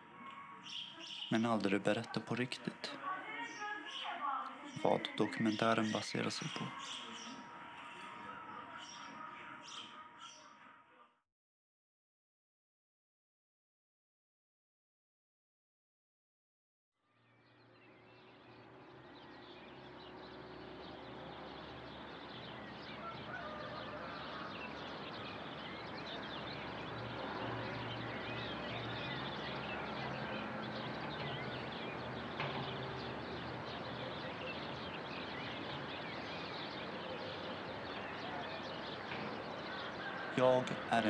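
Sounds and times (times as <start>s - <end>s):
birds chirping and calling: 0.0s - 10.8s, 17.3s - 41.0s.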